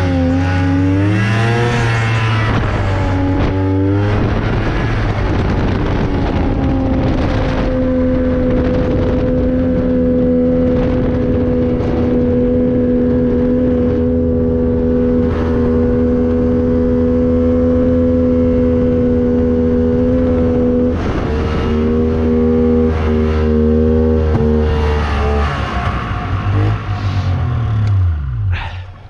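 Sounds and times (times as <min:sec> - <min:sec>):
snowmobile engine running: 0:00.0 - 0:28.8.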